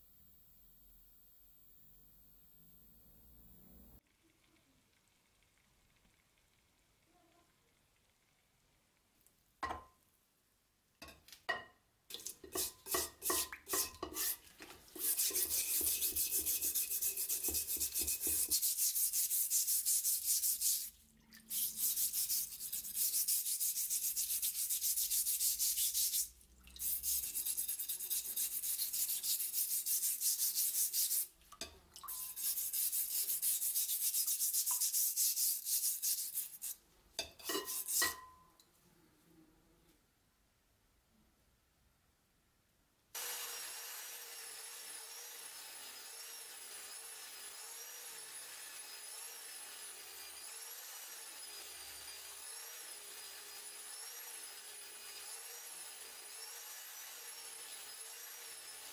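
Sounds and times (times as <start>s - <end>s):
hand scrubbing knife blade: 12.4s - 31.3s, 32.1s - 36.8s, 37.4s - 38.3s.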